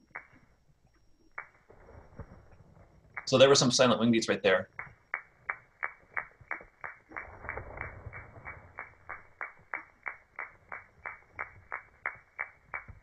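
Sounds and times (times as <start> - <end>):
grasshopper wings clicking: 0.0 - 13.0.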